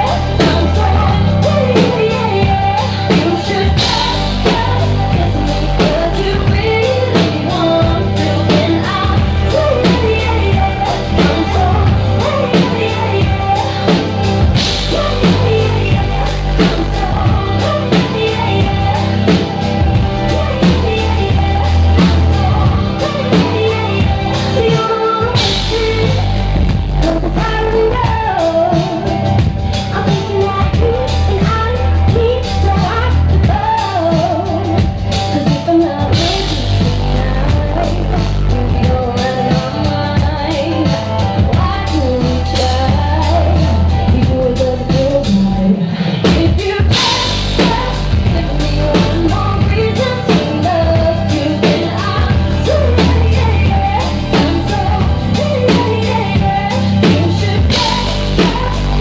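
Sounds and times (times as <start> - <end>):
drum kit: 0.0 - 59.0
heavy bass: 0.0 - 59.0
keyboards: 0.0 - 59.0
woman singing into microphone: 0.0 - 59.0.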